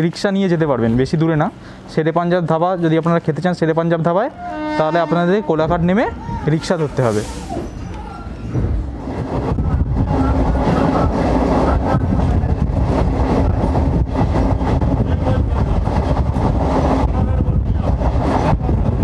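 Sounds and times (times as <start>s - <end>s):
train wheels on rails: 5.6s - 19.0s.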